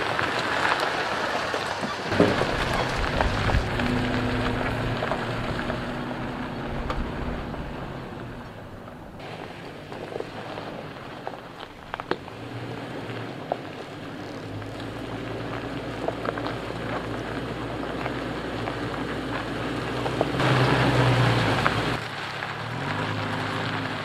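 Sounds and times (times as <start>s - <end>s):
truck engine hum: 0.0s - 24.0s
tyres on gravel: 0.0s - 24.0s
stones crunching and clicking: 9.8s - 20.4s.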